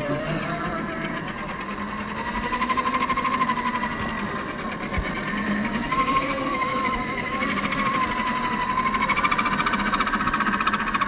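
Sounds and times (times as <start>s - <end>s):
electric motor whining: 0.0s - 11.0s.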